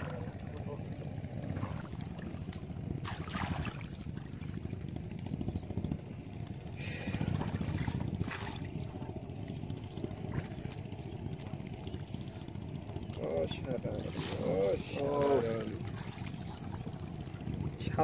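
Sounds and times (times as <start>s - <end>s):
water splashes: 0.0s - 4.6s, 7.4s - 10.8s, 13.8s - 18.0s
shallow water sloshing: 0.0s - 5.1s, 6.9s - 18.0s
low rumble: 0.0s - 18.0s.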